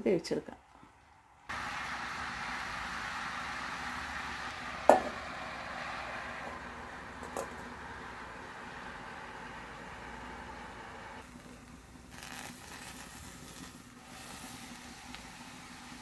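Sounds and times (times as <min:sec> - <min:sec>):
food sizzling in a pan: 0:01.5 - 0:07.0, 0:09.0 - 0:16.0.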